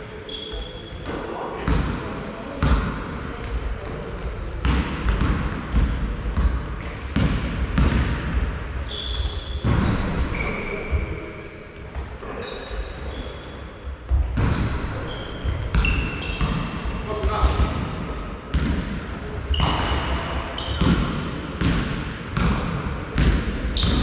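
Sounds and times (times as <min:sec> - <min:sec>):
sneakers squeaking on court: 0:00.2 - 0:01.9, 0:06.4 - 0:11.3, 0:12.3 - 0:16.8, 0:18.5 - 0:24.0.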